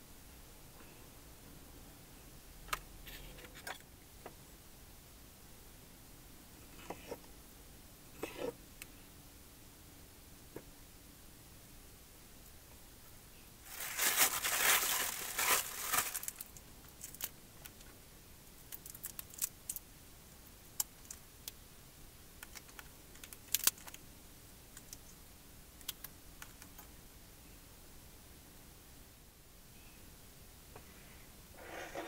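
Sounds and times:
plastic bag rustling: 0:13.6 - 0:17.3.

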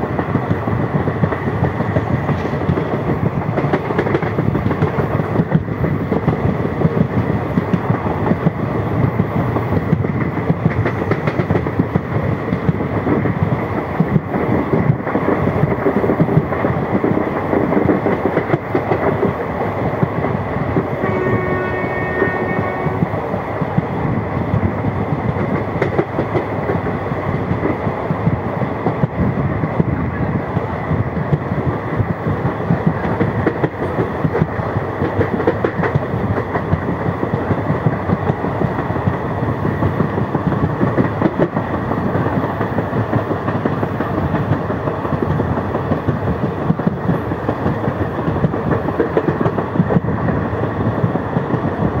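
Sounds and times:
train wheels rumbling on rails: 0:00.0 - 0:52.0.

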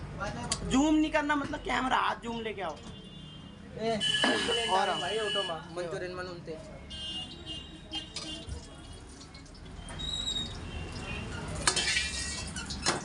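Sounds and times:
metal ladle scraping a wok: 0:11.7 - 0:12.8.

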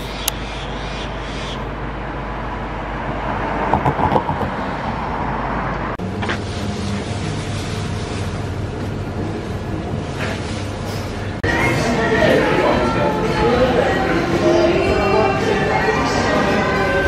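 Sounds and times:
street traffic: 0:00.0 - 0:17.0
car passing close: 0:01.7 - 0:06.4.

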